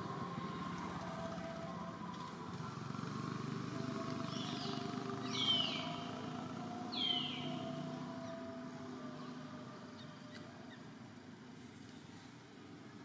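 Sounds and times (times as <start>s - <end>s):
low motor hum: 0.0s - 10.9s
high downward-sweeping calls: 3.8s - 10.9s.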